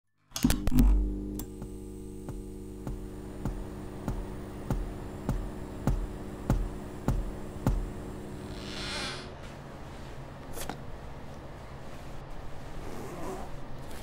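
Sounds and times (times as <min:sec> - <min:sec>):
electric hum: 0:00.3 - 0:09.8
slow ticking beat: 0:01.3 - 0:08.5.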